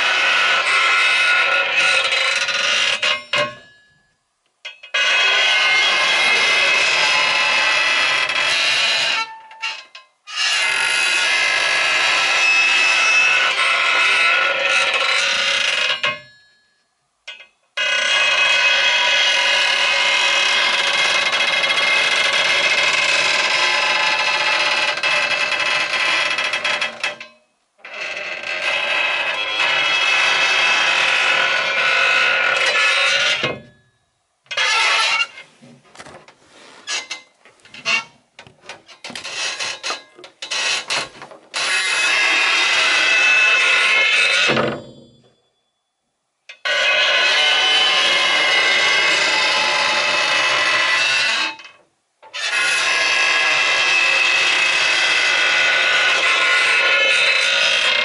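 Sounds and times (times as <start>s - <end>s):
wooden door creaking: 0.0s - 3.8s, 4.7s - 16.3s, 17.3s - 33.9s, 34.5s - 45.3s, 46.5s - 58.0s.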